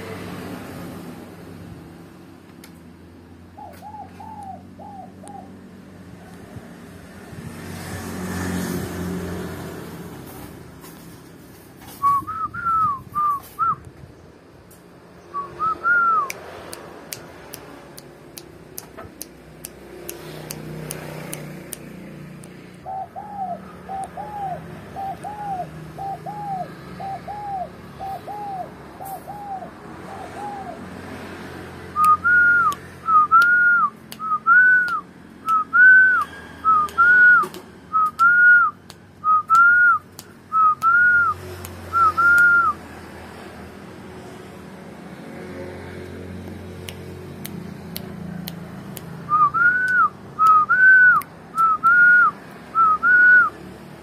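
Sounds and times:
whistled notes rising and falling: 12.0 - 13.9, 15.3 - 16.4, 32.0 - 42.8, 49.3 - 53.5.

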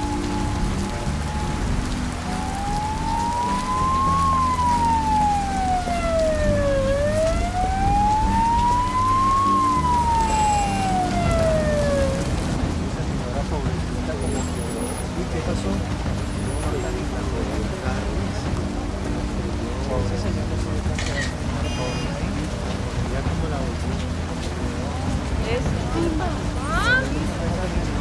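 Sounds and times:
emergency siren wailing: 0.0 - 12.6
steady rain: 0.0 - 28.0.

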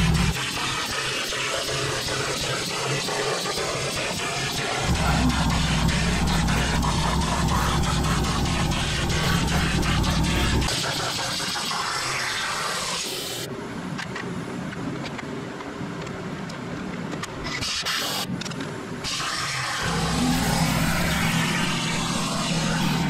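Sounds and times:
steady low hum: 0.0 - 12.3, 18.3 - 23.0
plasma torch hissing: 0.0 - 13.5, 17.5 - 18.3, 19.0 - 23.0.

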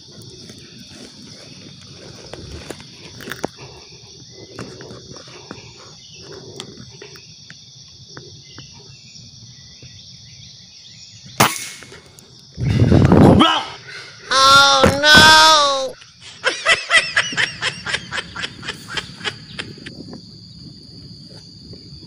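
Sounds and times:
forest insects droning: 0.0 - 22.0
air rifle shot: 11.4 - 12.0.

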